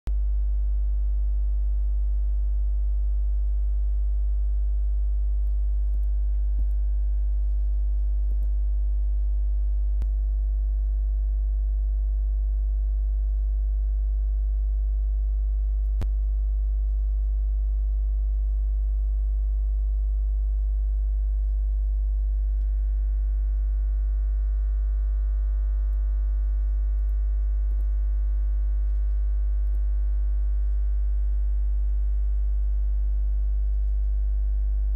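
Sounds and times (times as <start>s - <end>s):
electrical mains hum: 0.1s - 34.9s
faint clicks: 5.4s - 8.6s, 26.6s - 28.0s, 28.8s - 32.0s, 33.6s - 34.3s.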